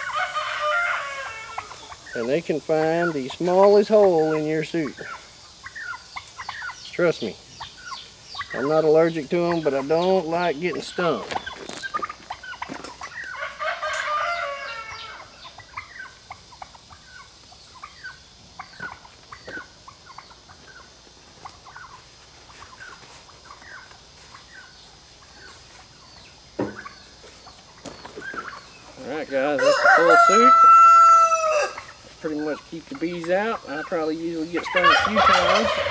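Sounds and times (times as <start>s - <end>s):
rooster crowing: 0.0s - 1.9s, 13.3s - 15.4s, 29.4s - 32.0s
chickens clucking: 0.0s - 35.9s.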